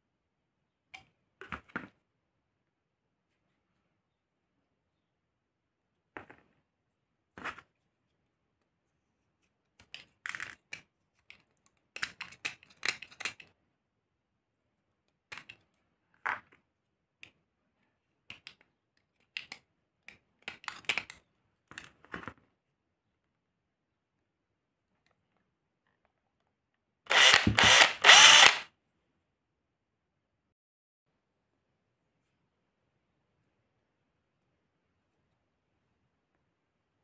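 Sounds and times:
knife clicking and scraping plastic: 9.8s - 13.6s.

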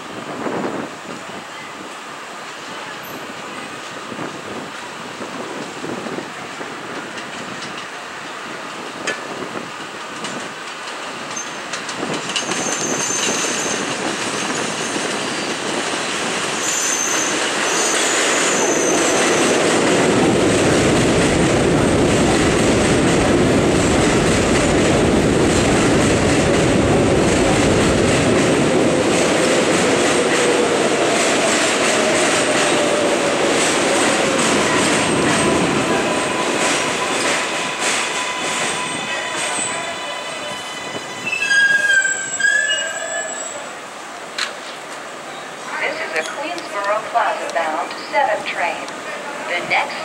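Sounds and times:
train cars rumbling past: 0.0s - 50.0s
train wheel squeals: 11.3s - 15.7s, 16.5s - 19.6s, 35.0s - 43.8s.

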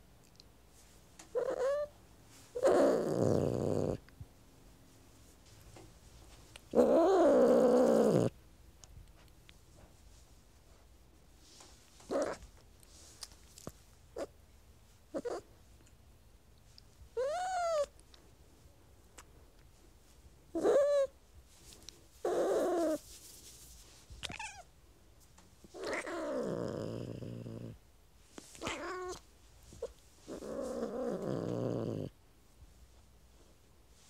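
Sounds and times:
cat meowing and growling: 25.8s - 27.3s, 28.6s - 29.2s.

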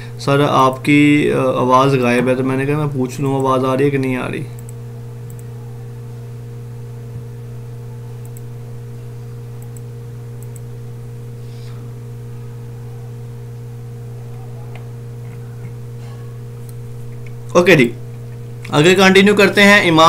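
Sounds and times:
low electrical hum: 0.0s - 20.0s
faint mouse clicks: 8.2s - 8.5s.

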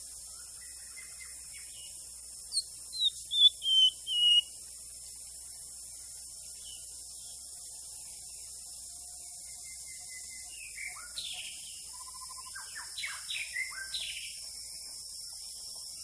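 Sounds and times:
bird whistling song: 0.3s - 4.6s, 9.5s - 14.4s.

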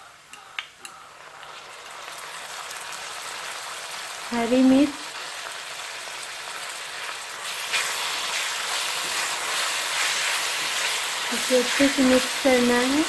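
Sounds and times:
food sizzling in hot oil: 1.1s - 13.0s
spatula stirring: 7.4s - 13.0s.

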